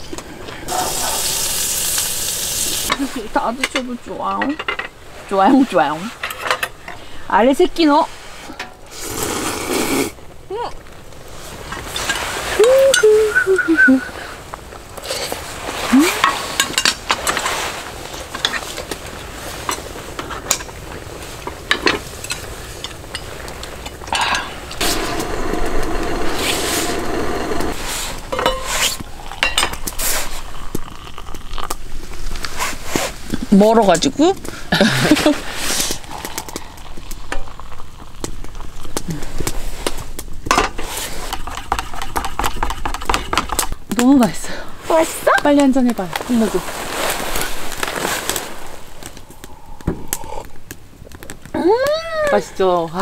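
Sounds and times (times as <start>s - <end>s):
rushing noise: 24.8s - 28.3s.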